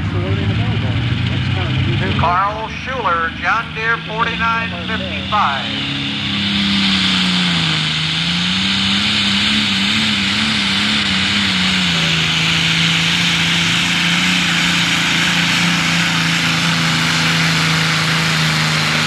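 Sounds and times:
diesel tractor engine under load: 0.0s - 19.0s.

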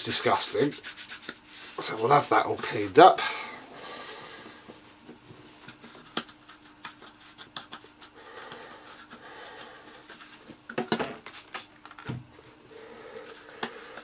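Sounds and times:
cloth rubbing on plastic: 0.0s - 2.8s.

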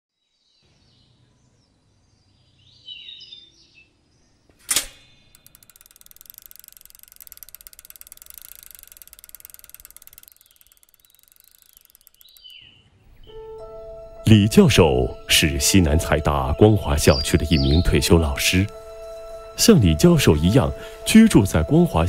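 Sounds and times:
bicycle freewheel ticking: 4.7s - 12.7s
birds chirping: 6.5s - 21.9s.

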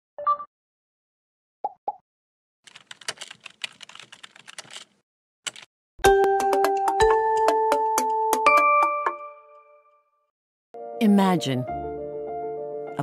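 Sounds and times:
keyboard key clicks: 2.7s - 4.9s, 5.5s - 5.7s.

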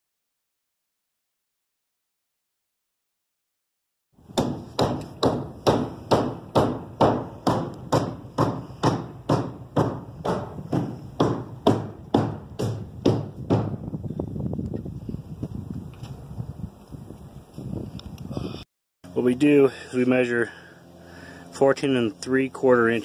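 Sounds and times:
hammer driving nails into wood: 4.4s - 13.8s.

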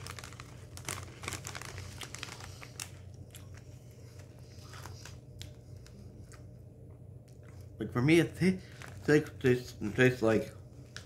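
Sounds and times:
chips being chewed: 0.0s - 3.8s
chip bag crinkling: 0.0s - 6.0s, 8.5s - 11.0s.

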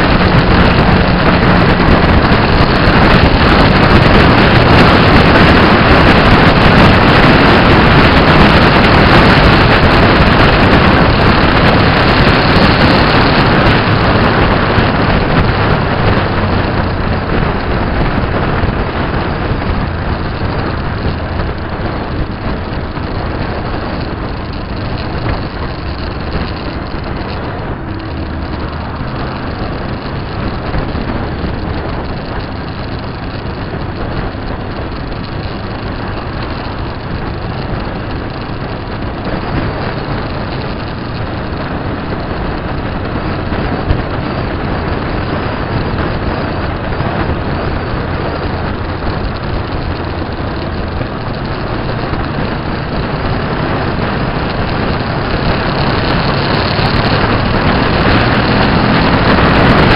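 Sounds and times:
vehicle engine and road noise: 0.0s - 59.9s.

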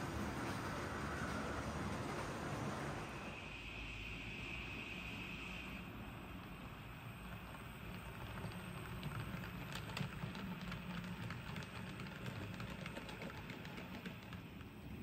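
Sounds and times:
wheels clicking over track: 6.4s - 15.0s.

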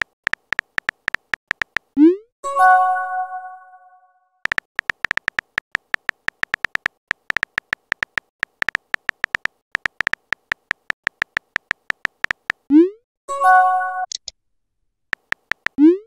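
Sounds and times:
keyboard tap clicks: 0.0s - 2.0s, 4.5s - 12.6s, 15.2s - 15.8s.

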